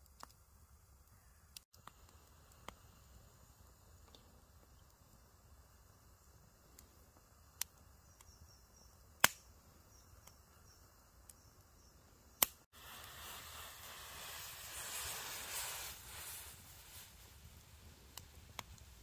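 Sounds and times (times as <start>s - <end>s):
burning wood popping: 0.0s - 8.4s, 9.1s - 10.6s, 12.4s - 19.0s
campfire crackling: 0.0s - 19.0s
steady hiss: 0.0s - 19.0s.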